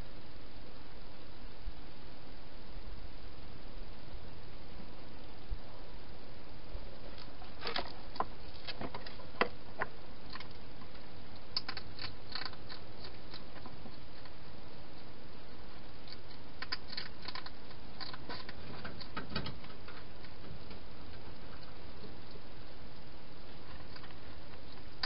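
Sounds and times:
steady hiss: 0.0 - 25.0
hedgehog crunching food: 7.1 - 15.1, 15.9 - 25.0.

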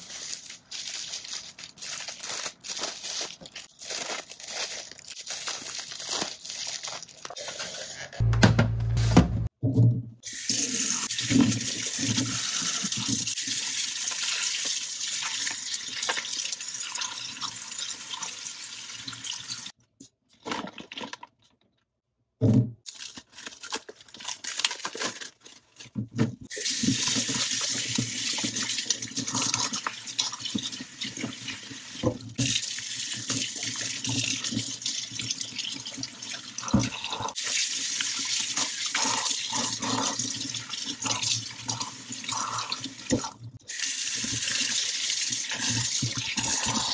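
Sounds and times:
plastic bag rustling: 0.0 - 8.2, 22.9 - 28.6.

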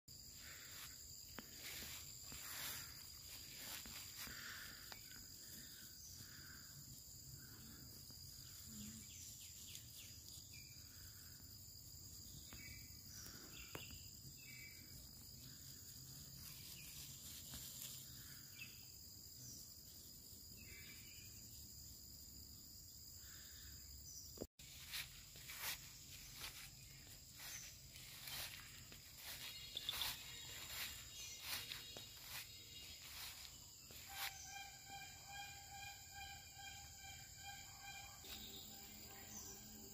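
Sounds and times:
high insect drone: 0.1 - 39.9
rustling through grass: 0.4 - 4.8, 16.2 - 18.4, 24.6 - 34.4.

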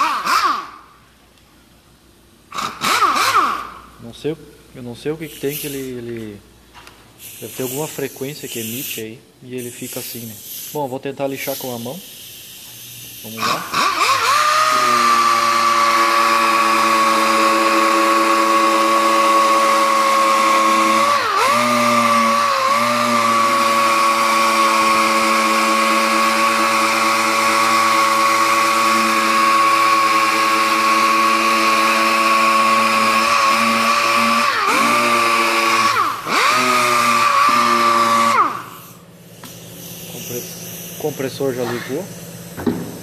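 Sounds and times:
hiss of air: 5.2 - 6.0, 7.1 - 13.4, 38.6 - 43.0
air sander whining: 12.6 - 43.0.

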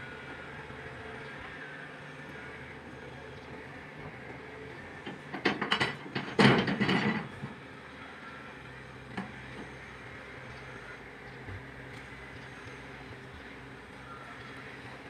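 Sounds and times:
steady low hum: 0.0 - 15.0
clattering knocks and scrapes: 5.1 - 7.5.

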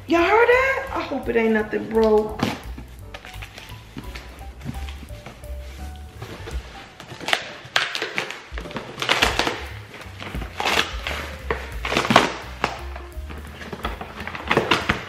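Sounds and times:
background music: 0.0 - 15.0
cardboard box tearing: 6.2 - 15.0.

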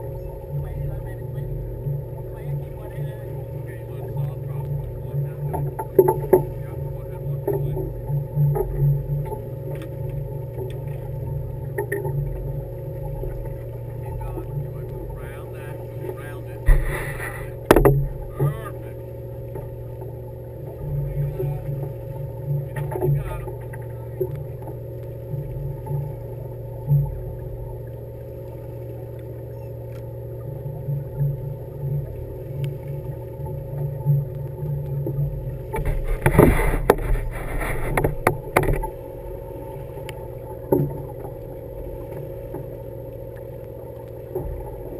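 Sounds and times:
boat engine humming: 0.0 - 44.9
faint clicks and knocks: 1.8 - 15.2, 16.0 - 18.7, 19.5 - 44.9
low thumps: 15.9 - 18.8.

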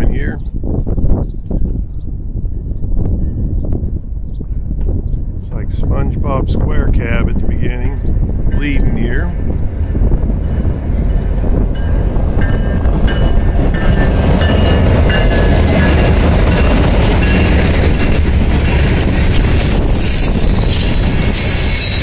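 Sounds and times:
diesel locomotives passing: 7.3 - 22.0
train wheels clicking on rail joints: 9.8 - 22.0.

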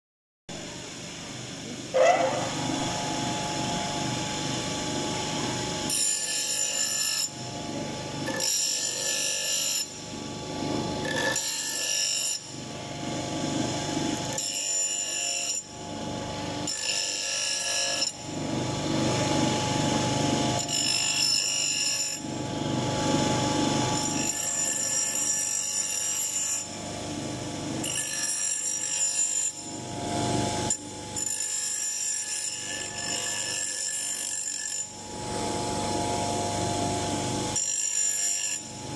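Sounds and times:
bench grinder motor hum: 2.0 - 6.6.

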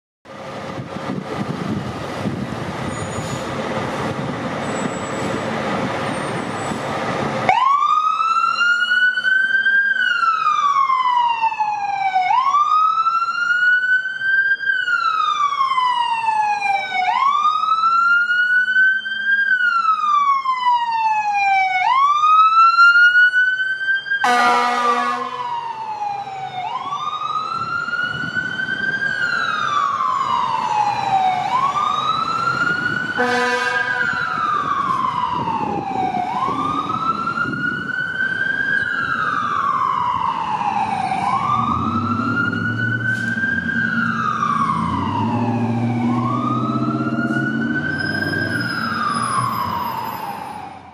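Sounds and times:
fire truck wail siren: 0.3 - 50.9
air horn blasts: 24.2 - 25.4, 33.2 - 34.2.

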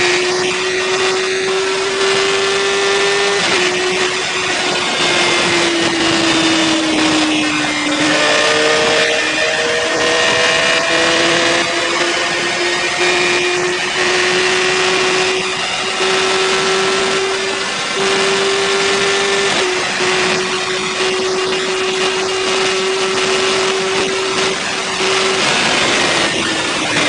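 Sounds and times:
motorcycle engine at high revs: 0.0 - 27.0
wind rush: 0.0 - 27.0.

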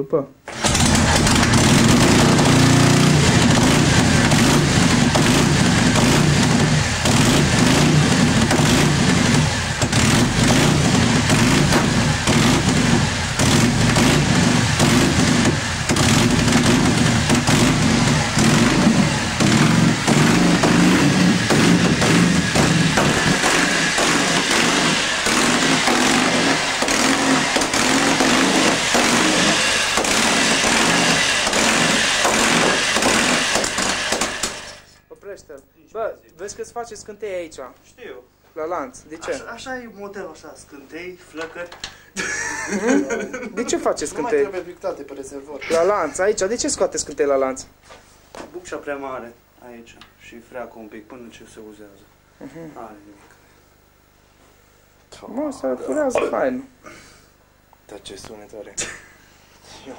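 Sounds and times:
motorcycle engine rumbling: 0.5 - 30.9.

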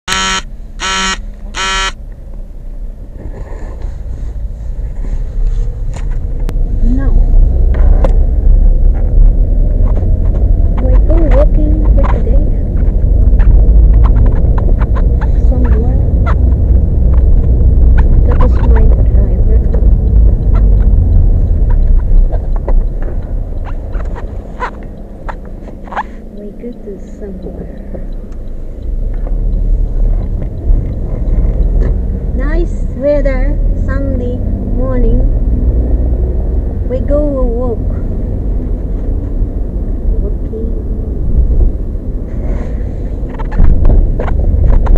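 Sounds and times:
car engine rumble: 0.0 - 44.9
road noise inside car: 0.0 - 44.9
buzzy electronic beep: 0.1 - 2.0
light clicks and ticks: 9.1 - 33.3.

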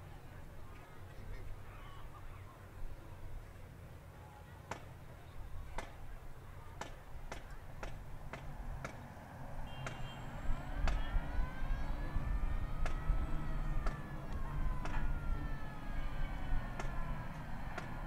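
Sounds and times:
siren wailing: 10.2 - 18.0.

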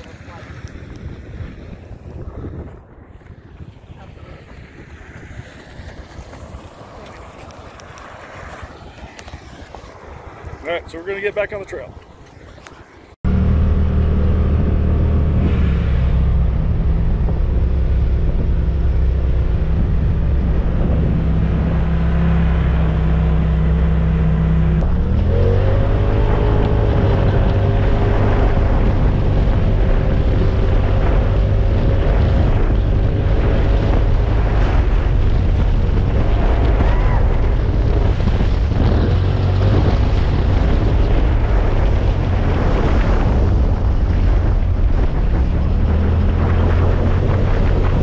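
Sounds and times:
wind and road noise: 0.0 - 48.0
engine drone: 13.2 - 48.0.

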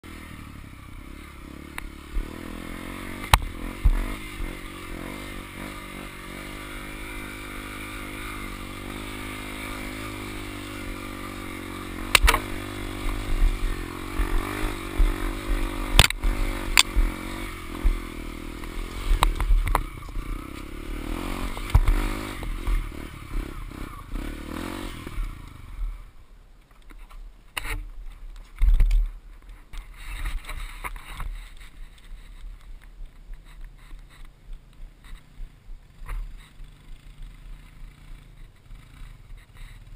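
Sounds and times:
dirt bike engine revving: 0.0 - 26.2.

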